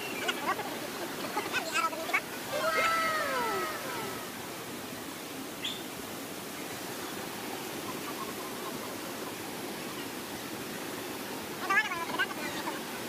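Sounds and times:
waterfall rushing: 0.0s - 8.1s.

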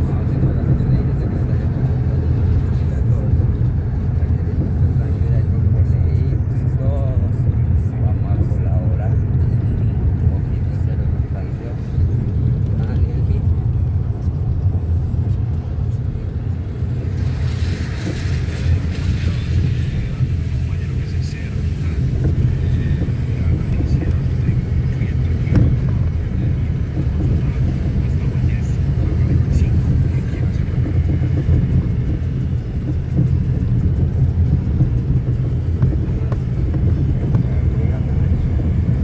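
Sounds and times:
car rumble from inside cabin: 0.0s - 39.0s
tyres hissing on wet road: 14.6s - 39.0s.

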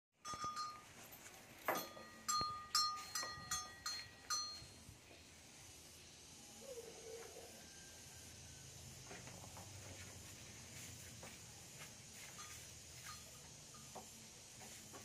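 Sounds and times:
metallic clinking: 0.2s - 4.8s.

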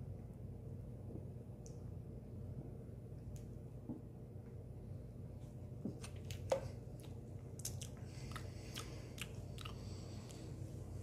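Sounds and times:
lip smacks and tongue clicks: 6.1s - 10.4s.

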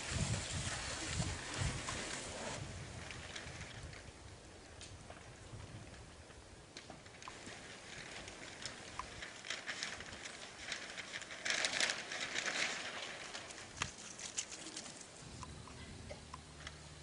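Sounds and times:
elephant trunk rustling paper: 7.1s - 15.2s.

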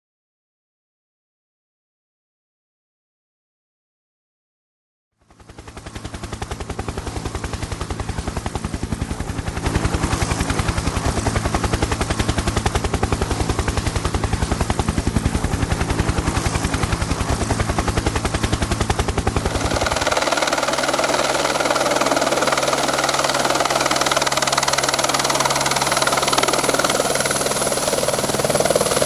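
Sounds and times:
helicopter rotor chopping: 5.4s - 29.0s
engine drone: 9.0s - 29.0s.

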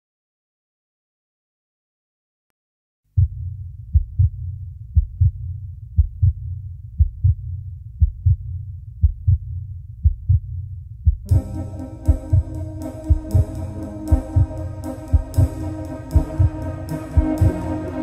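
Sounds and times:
heartbeat thumps: 3.2s - 18.0s
low rumbling drone: 11.3s - 18.0s.

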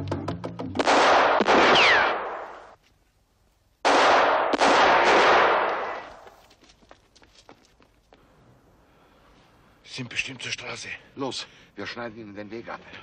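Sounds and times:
echoing pistol shots: 0.8s - 2.8s, 3.8s - 6.2s.

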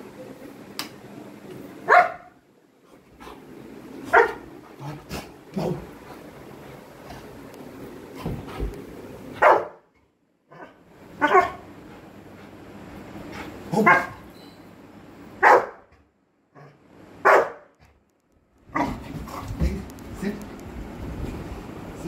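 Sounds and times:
dog barking: 1.9s - 2.4s, 4.1s - 4.4s, 9.4s - 9.8s, 10.5s - 11.6s, 13.8s - 14.2s, 15.4s - 15.9s, 17.2s - 17.7s.

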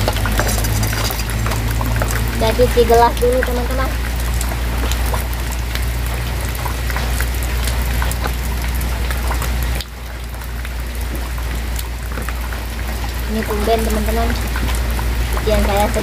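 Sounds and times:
plastic dishes scrubbed in water: 0.0s - 2.3s
heavy rain falling: 0.0s - 16.0s.

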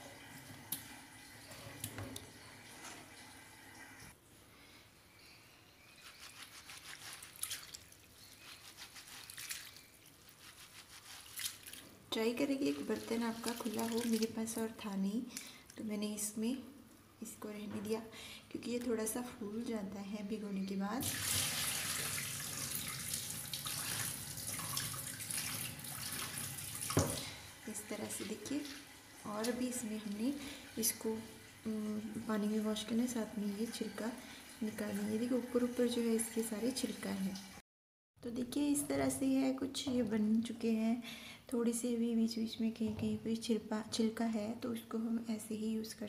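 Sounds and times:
hands splashing in water: 6.4s - 11.9s
water splashing into steel sink: 7.2s - 8.5s, 9.1s - 9.9s, 11.2s - 11.9s, 12.6s - 14.8s, 21.0s - 31.8s.

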